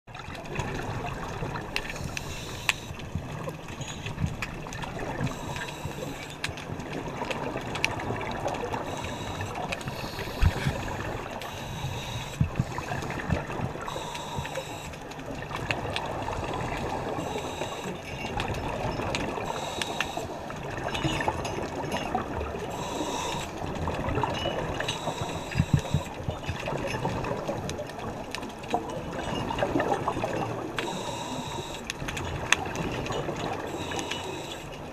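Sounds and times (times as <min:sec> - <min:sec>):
bubbles gurgling underwater: 0:00.1 - 0:02.2, 0:06.6 - 0:14.4, 0:20.3 - 0:34.4
underwater clicks: 0:00.1 - 0:34.9
diver breathing through regulator: 0:01.8 - 0:03.0, 0:05.2 - 0:06.4, 0:08.8 - 0:15.0, 0:16.2 - 0:18.0, 0:19.4 - 0:20.5, 0:22.7 - 0:23.6, 0:24.8 - 0:26.1, 0:30.8 - 0:31.9, 0:33.6 - 0:34.8.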